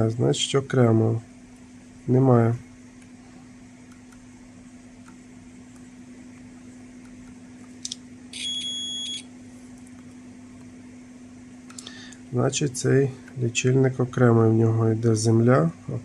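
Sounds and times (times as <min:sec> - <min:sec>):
faint steady hum: 0:00.0 - 0:16.0
multimeter high beep: 0:08.3 - 0:09.3.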